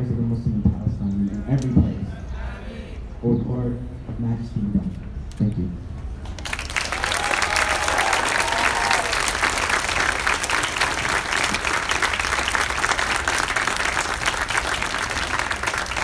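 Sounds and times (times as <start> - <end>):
crowd applauding: 6.2 - 16.0.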